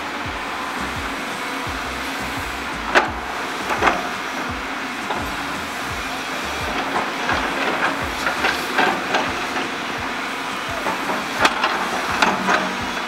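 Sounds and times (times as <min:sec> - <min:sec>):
excavator diesel engine running: 0:00.0 - 0:13.0
steady hiss: 0:00.0 - 0:13.0
bucket clanking and knocking: 0:00.3 - 0:13.0.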